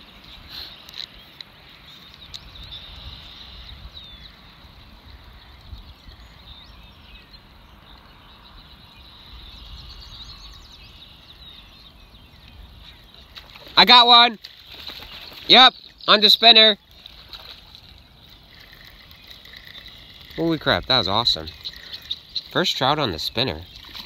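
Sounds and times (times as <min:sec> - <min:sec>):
faint bird chirps: 0:00.2 - 0:13.8, 0:14.7 - 0:24.0
wind rumble on microphone: 0:02.2 - 0:13.7.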